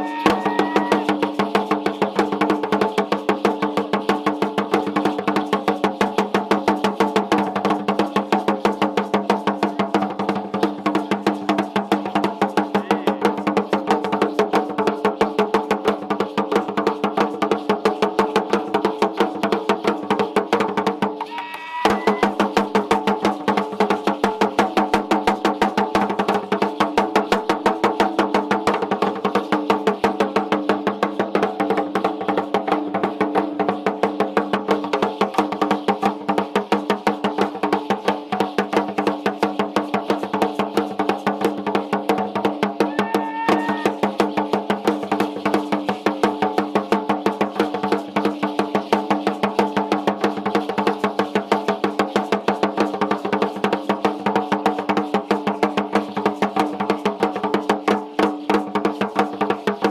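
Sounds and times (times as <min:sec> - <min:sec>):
wooden drum struck with sticks: 0:00.0 - 0:01.2, 0:42.5 - 0:44.4.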